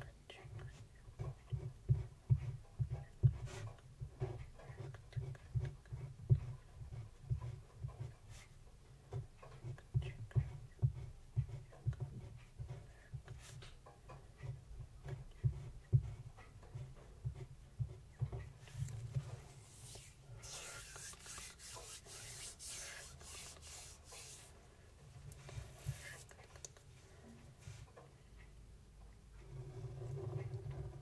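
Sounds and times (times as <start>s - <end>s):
pen tapping and scratching on paper: 0.5s - 8.4s, 9.1s - 24.5s, 25.4s - 26.7s.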